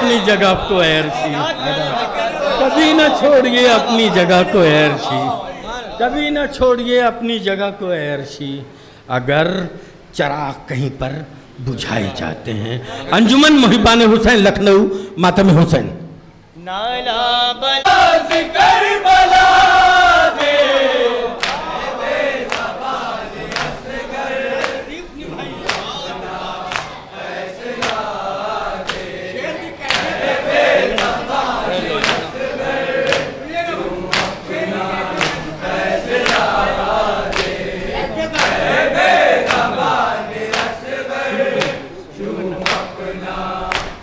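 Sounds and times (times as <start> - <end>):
men chanting together: 0.0 - 6.4, 16.8 - 44.0.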